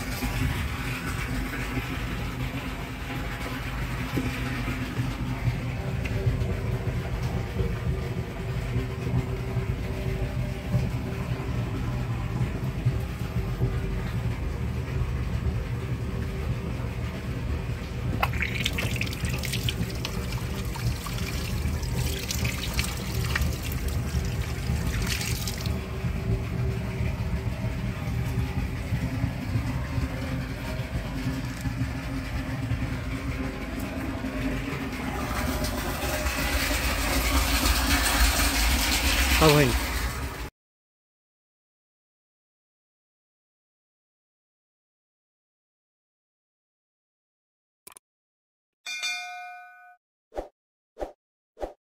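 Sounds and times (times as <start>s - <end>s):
low machine hum: 0.0s - 40.5s
water gushing and splashing: 18.2s - 25.8s, 34.8s - 40.5s.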